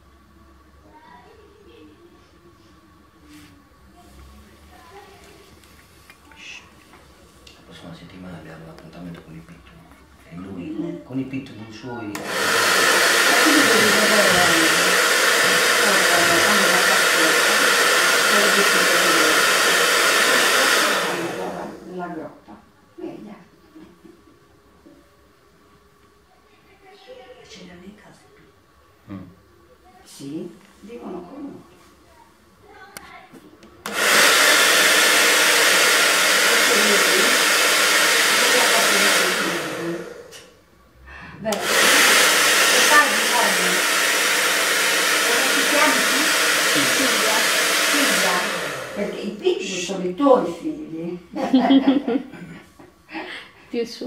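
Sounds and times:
hair dryer running: 10.3s - 22.3s, 33.8s - 40.6s, 41.4s - 50.6s.

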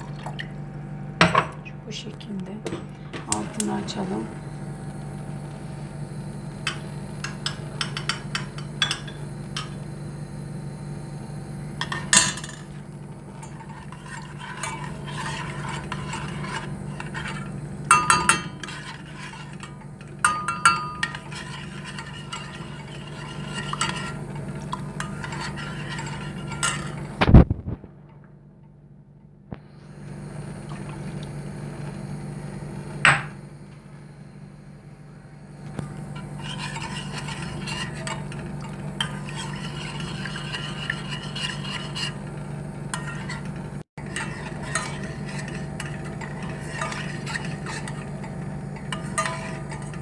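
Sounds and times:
steady low hum: 0.0s - 50.0s
metal spoon clinking in a pot: 7.2s - 9.7s, 17.9s - 24.2s, 44.1s - 50.0s.

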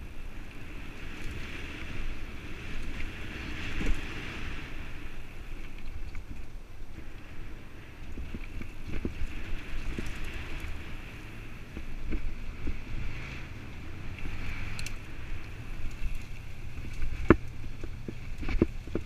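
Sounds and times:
wind rush on microphone: 0.0s - 19.0s
bike knocks and rattles: 16.0s - 19.0s.

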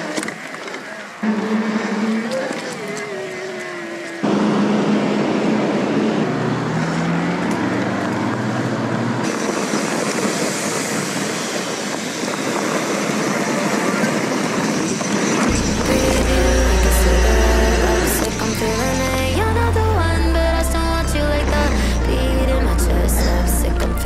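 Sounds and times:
wind rushing on microphone: 0.0s - 19.4s
road noise: 0.0s - 24.0s
low hum rising in pitch: 15.5s - 24.0s.

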